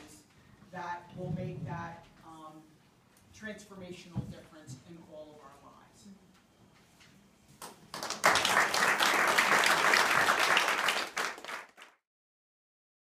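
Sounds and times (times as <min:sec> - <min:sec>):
audience applauding: 0:07.9 - 0:12.0.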